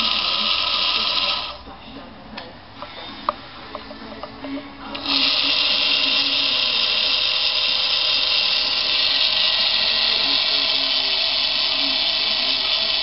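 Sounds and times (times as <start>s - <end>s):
electric motor whining: 0.0s - 1.6s, 4.8s - 13.0s.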